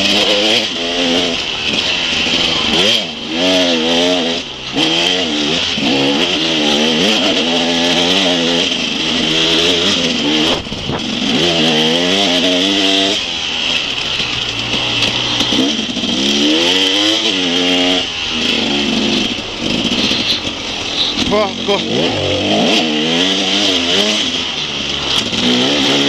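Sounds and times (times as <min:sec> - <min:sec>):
motorcycle engine revving: 0:00.0 - 0:26.0.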